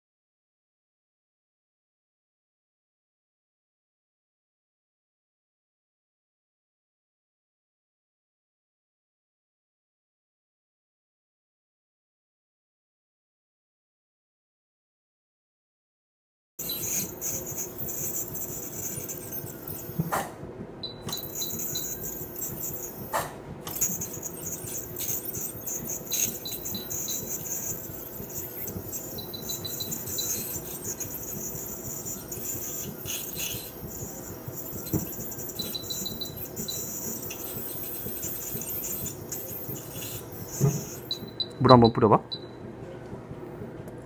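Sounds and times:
high chirping trills: 16.6s - 20.1s, 20.8s - 42.6s
dental scaler water spray hiss: 16.6s - 20.2s, 21.1s - 41.4s.

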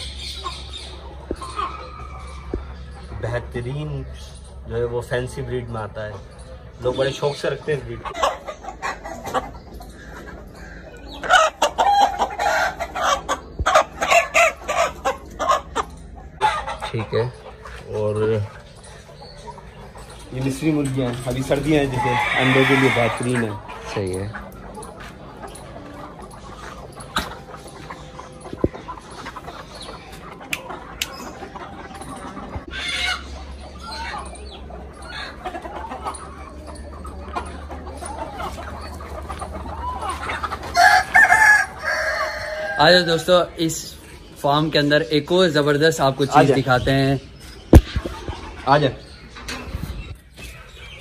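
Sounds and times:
chickens clucking: 0.0s - 51.0s
rooster crowing: 40.8s - 43.0s.

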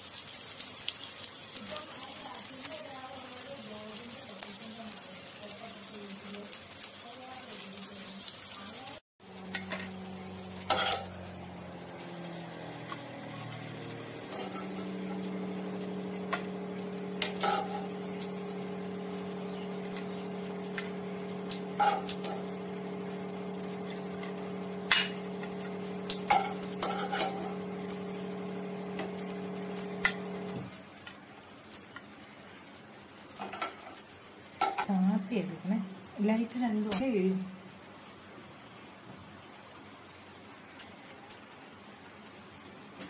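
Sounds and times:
steady low hum: 12.9s - 30.7s.

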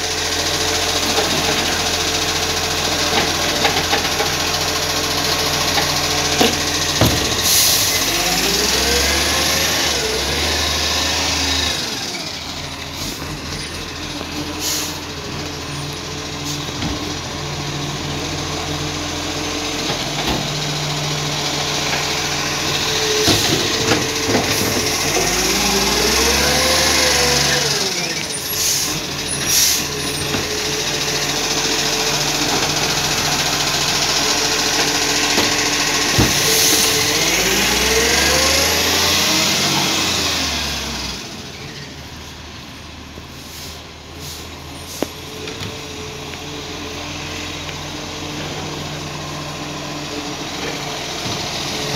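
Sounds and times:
hydraulic whine: 0.0s - 17.3s, 19.8s - 42.1s
garbage truck diesel engine running: 0.0s - 51.9s.

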